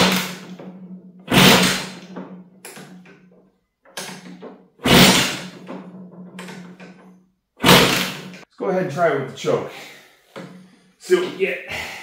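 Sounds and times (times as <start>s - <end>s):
engine turning over: 0.0s - 0.6s, 1.3s - 2.2s, 4.8s - 5.6s, 7.6s - 8.4s
motorcycle kick-start: 1.3s - 2.1s, 4.8s - 5.6s, 7.6s - 8.4s.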